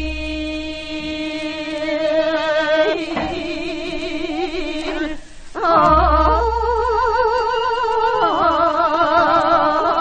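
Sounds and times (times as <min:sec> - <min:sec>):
woman singing with vibrato: 0:00.0 - 0:10.0.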